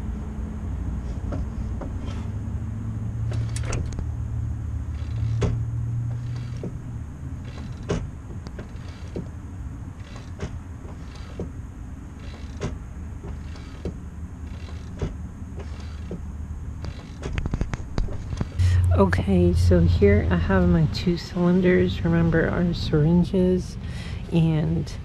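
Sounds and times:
low hum: 0.0 - 25.0
clutch pedal clicks and creaks: 1.1 - 2.4, 3.2 - 4.1, 4.8 - 18.6.

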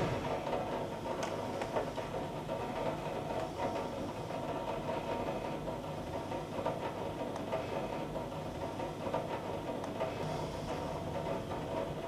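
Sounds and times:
thunderstorm rumbling: 0.0 - 0.6.

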